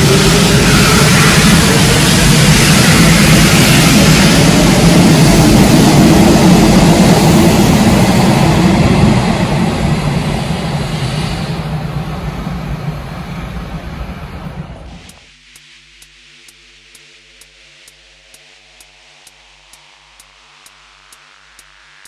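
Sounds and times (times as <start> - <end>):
electric train rumbling past: 0.0 - 15.2.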